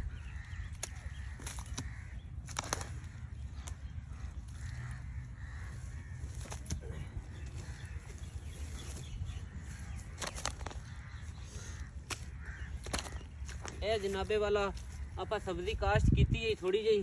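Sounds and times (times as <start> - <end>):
birds calling: 0.0 - 17.0.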